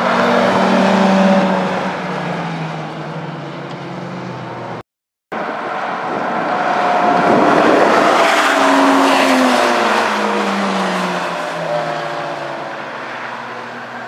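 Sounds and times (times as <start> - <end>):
sports cars driving past: 5.4 - 14.0.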